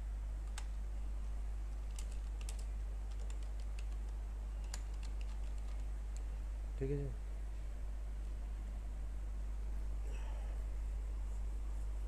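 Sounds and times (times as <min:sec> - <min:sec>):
steady low hum: 0:00.0 - 0:12.0
computer keyboard typing: 0:01.9 - 0:06.2.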